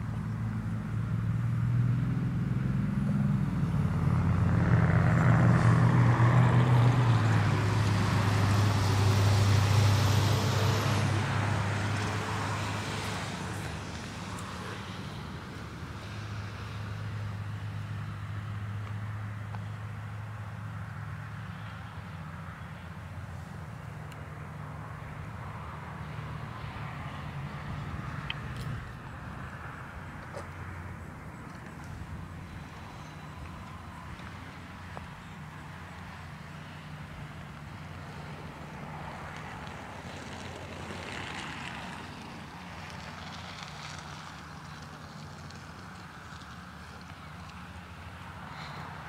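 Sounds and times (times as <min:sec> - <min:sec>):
low engine hum: 0:00.0 - 0:49.0
vehicle passing: 0:00.0 - 0:49.0.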